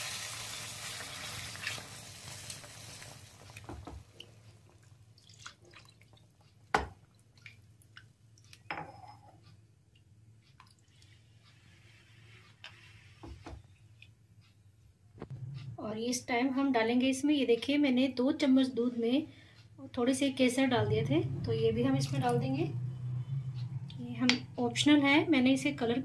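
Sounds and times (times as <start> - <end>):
food sizzling in a pan: 0.0 - 3.5.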